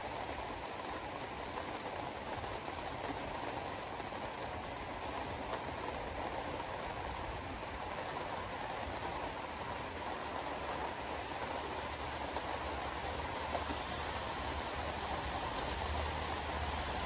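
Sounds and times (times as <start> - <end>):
rain: 0.0 - 17.0
tyres hissing on wet road: 0.0 - 17.0
faint ticks: 10.2 - 10.5, 15.5 - 15.7.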